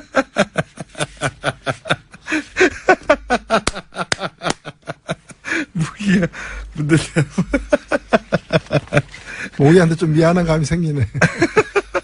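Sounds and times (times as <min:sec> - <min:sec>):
person laughing: 0:00.0 - 0:09.4.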